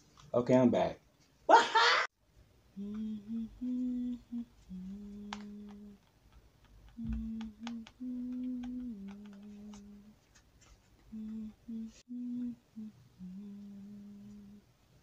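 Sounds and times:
man humming: 0:02.8 - 0:06.0, 0:07.0 - 0:10.1, 0:11.1 - 0:14.6.

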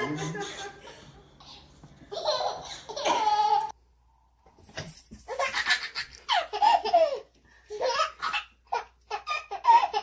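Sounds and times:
baby laughing: 0:02.1 - 0:03.8, 0:05.3 - 0:10.0.

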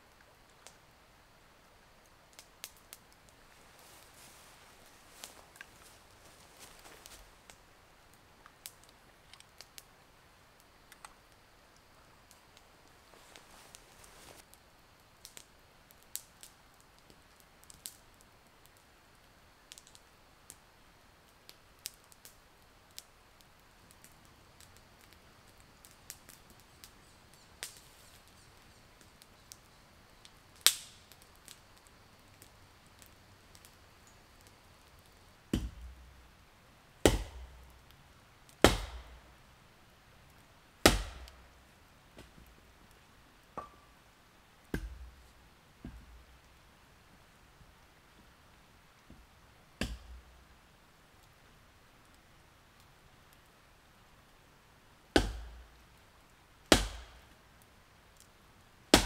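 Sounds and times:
campfire crackling: 0:00.0 - 0:59.0
heavy chopping into wood: 0:37.0 - 0:37.4, 0:38.6 - 0:39.1, 0:40.9 - 0:41.3, 0:56.7 - 0:57.1.

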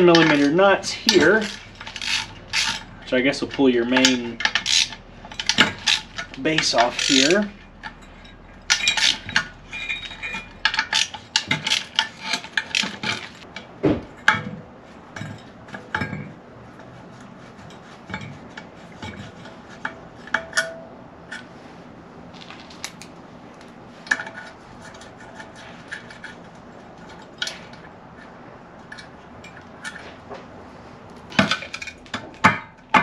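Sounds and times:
wrench and nuts clinking: 0:00.0 - 0:13.4, 0:31.3 - 0:33.0.

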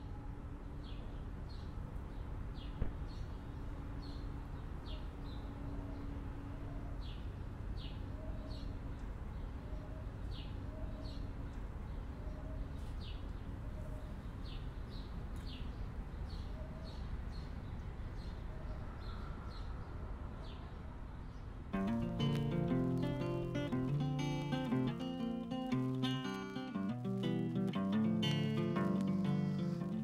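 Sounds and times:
small birds chirping: 0:21.3 - 0:30.0
faint lower bird notes: 0:21.8 - 0:30.0.

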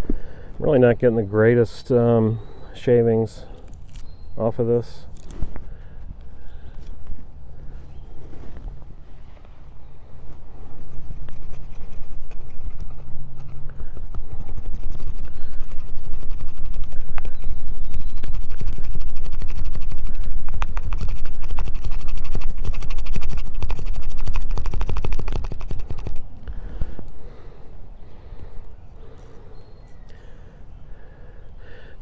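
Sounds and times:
knife shaving wood: 0:10.6 - 0:26.3.

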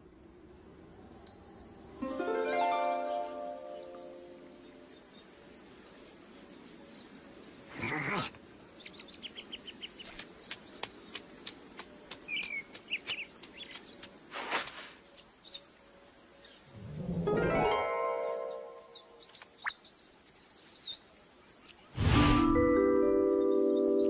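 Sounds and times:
short rushing noises: 0:22.0 - 0:22.8.

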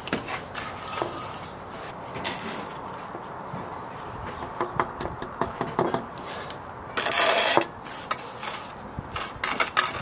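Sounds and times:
trowel scraping mortar on bricks: 0:00.3 - 0:01.6, 0:07.0 - 0:10.0.

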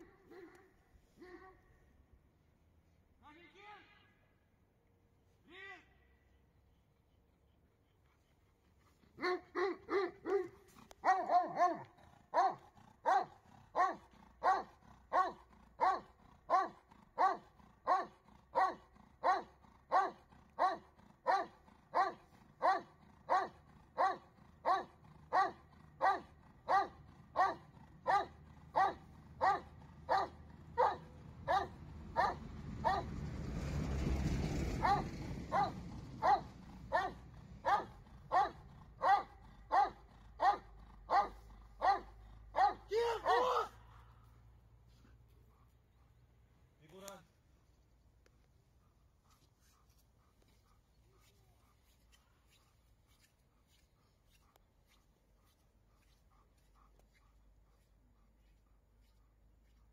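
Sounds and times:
dog barking: 0:00.0 - 0:01.6, 0:09.2 - 0:33.1, 0:34.8 - 0:43.8.

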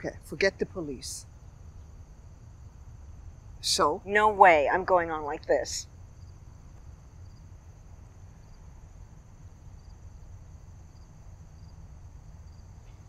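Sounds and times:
insects trilling: 0:00.0 - 0:13.0.

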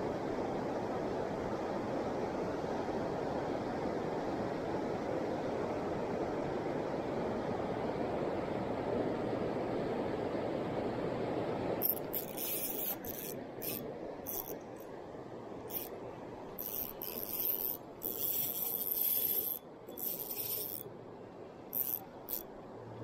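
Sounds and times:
fishing reel whirring: 0:11.8 - 0:14.8, 0:15.7 - 0:20.9, 0:21.7 - 0:22.5.

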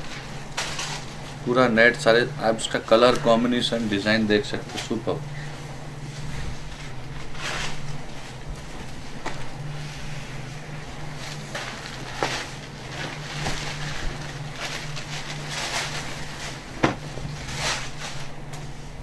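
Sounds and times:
steady low hum: 0:00.0 - 0:19.0
fabric swishing and rustling: 0:05.4 - 0:19.0.

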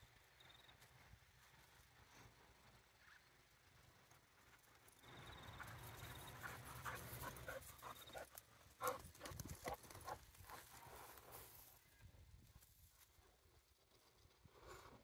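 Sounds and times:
dog panting: 0:05.6 - 0:11.0.

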